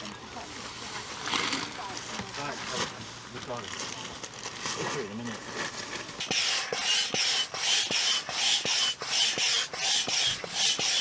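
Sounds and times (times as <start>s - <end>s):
hand pump hissing air: 6.2s - 11.0s
pump squeak: 6.2s - 11.0s.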